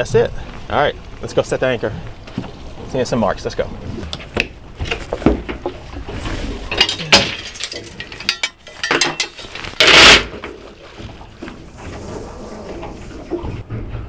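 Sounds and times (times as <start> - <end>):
anchor chain clinking and rattling: 6.7 - 10.3.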